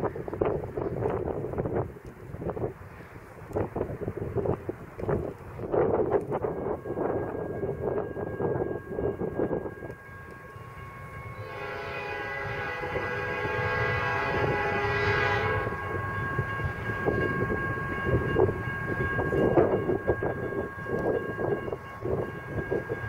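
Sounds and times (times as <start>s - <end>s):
freight train rumble: 0.0s - 23.0s
locomotive air horn: 10.2s - 16.4s.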